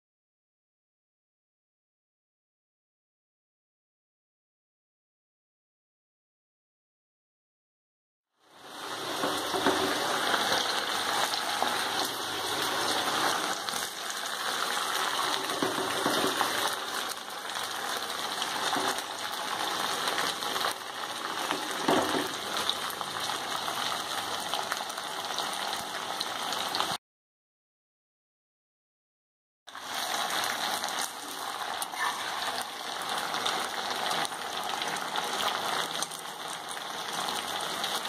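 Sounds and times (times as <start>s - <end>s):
chicken deep-frying in oil: 8.4s - 27.0s, 29.7s - 38.0s.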